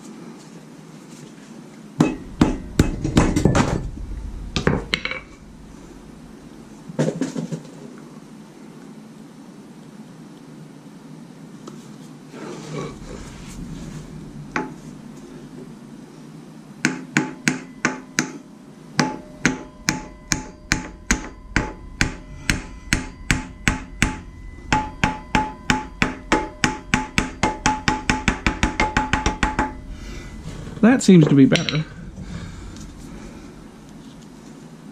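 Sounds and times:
sledgehammer striking metal: 2.0s - 7.4s, 16.9s - 18.4s, 19.0s - 33.4s.

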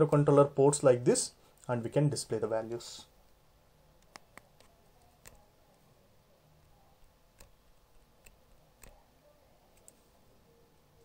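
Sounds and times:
computer mouse clicks: 4.0s - 5.5s, 7.3s - 9.0s.

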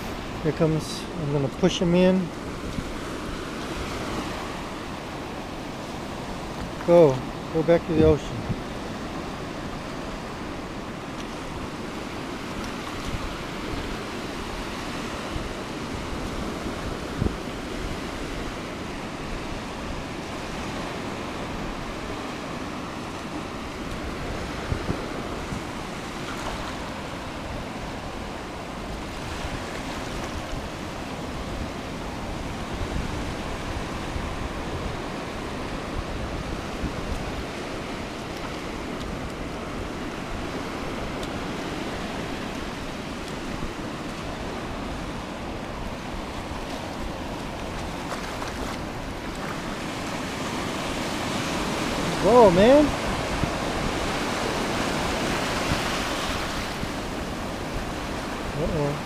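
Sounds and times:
waves washing over sand: 0.0s - 59.0s.

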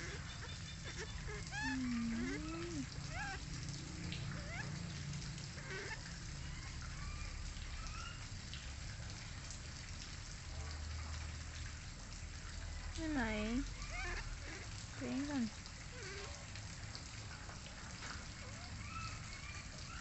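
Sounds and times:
high chirping calls: 0.0s - 3.4s
low hum and hiss: 0.0s - 19.4s.

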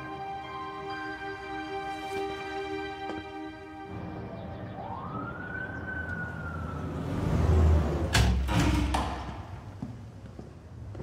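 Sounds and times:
ambulance siren wailing: 3.9s - 7.9s.

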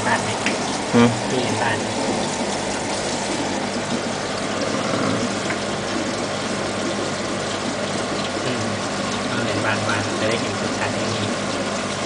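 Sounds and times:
fish tank pump humming: 0.0s - 12.0s
water rushing: 0.0s - 12.0s.

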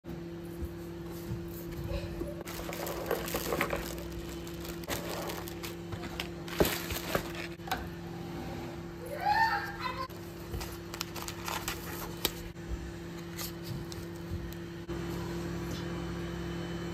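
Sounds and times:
steady low hum: 0.1s - 16.9s
plastic packing rustling: 2.4s - 7.6s, 10.1s - 12.5s.

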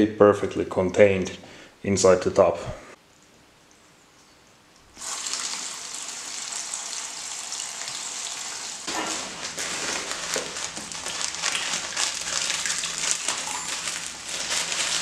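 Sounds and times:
hose water splashing: 5.0s - 15.0s.

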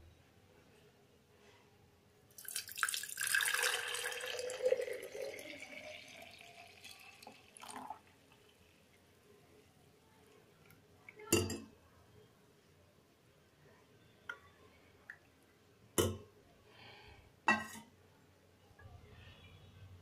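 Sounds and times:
juice pouring into a jug: 2.3s - 9.0s.

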